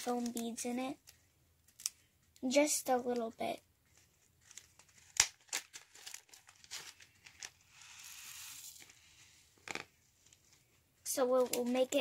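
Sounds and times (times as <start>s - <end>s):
plastic bag of foam beads crinkling: 4.1s - 9.0s.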